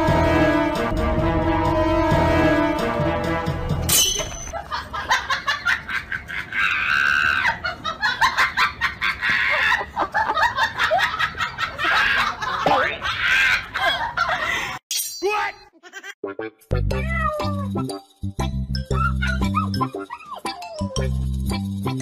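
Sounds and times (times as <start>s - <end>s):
person laughing: 4.5s - 14.7s, 18.9s - 20.9s.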